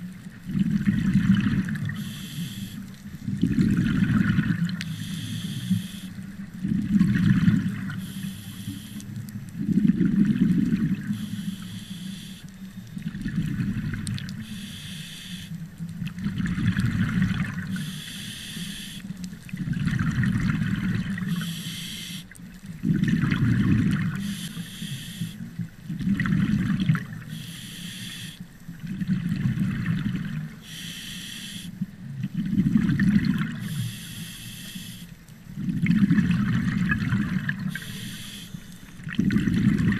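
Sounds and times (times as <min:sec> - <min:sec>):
exhaled bubbles rushing: 0:00.4 - 0:02.0, 0:03.2 - 0:04.8, 0:06.6 - 0:08.0, 0:09.5 - 0:11.2, 0:13.0 - 0:14.4, 0:16.0 - 0:17.8, 0:19.5 - 0:21.4, 0:22.7 - 0:24.3, 0:25.8 - 0:27.3, 0:28.8 - 0:30.6, 0:32.1 - 0:33.6, 0:35.6 - 0:37.9, 0:39.0 - 0:39.9
regulator inhale hiss: 0:01.9 - 0:03.0, 0:04.8 - 0:06.3, 0:07.9 - 0:09.2, 0:11.0 - 0:12.7, 0:14.4 - 0:15.6, 0:17.7 - 0:19.2, 0:21.3 - 0:22.4, 0:24.2 - 0:25.5, 0:27.2 - 0:28.4, 0:30.6 - 0:31.8, 0:33.6 - 0:35.2, 0:37.6 - 0:39.0.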